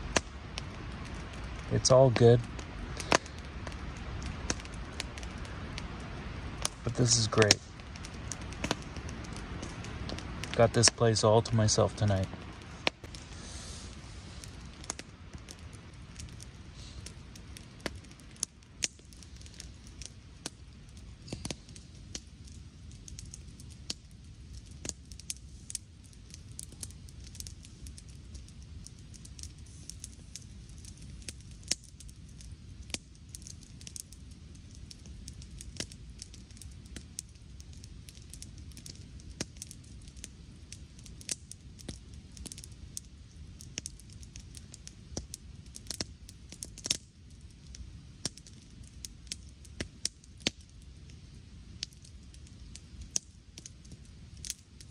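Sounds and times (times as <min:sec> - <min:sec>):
campfire crackling: 0:00.0 - 0:54.9.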